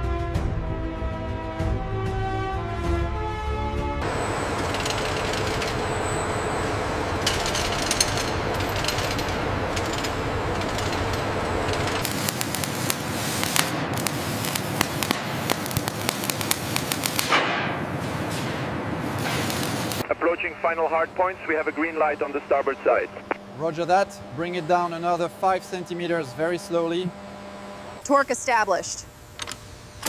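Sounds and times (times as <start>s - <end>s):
industrial hum: 0.8s - 30.0s
welding crackle and pops: 4.0s - 20.0s.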